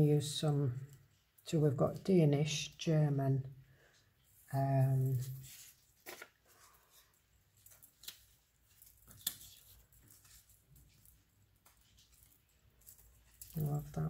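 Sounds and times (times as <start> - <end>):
paper rustling: 4.2 - 14.0.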